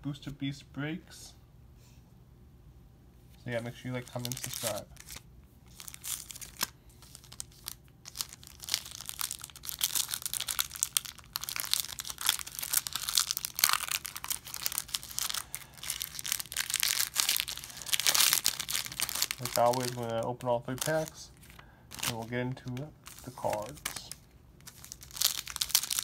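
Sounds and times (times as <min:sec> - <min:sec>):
foil wrapper crinkling and tearing: 0:04.0 - 0:26.0.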